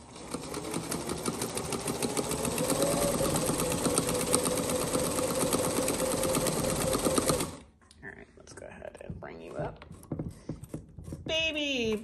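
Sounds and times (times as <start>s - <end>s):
sewing machine stitching: 0.0s - 7.7s.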